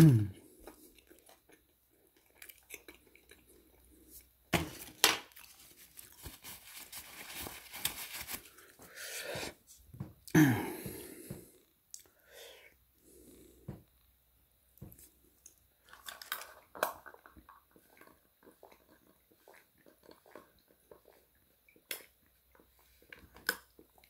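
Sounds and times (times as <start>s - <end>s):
low vocal sound: 0.0s - 0.4s
chewing: 0.6s - 4.3s, 15.9s - 24.0s
paper wrappers crinkling and tearing: 4.7s - 8.8s
rustling: 4.7s - 8.8s.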